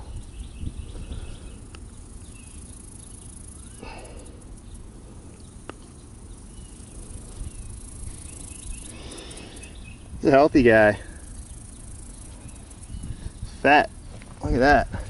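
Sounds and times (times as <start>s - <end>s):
wind rumble on microphone: 0.0s - 2.8s, 6.5s - 15.0s
insects chirping: 0.0s - 15.0s
rustle: 0.0s - 15.0s.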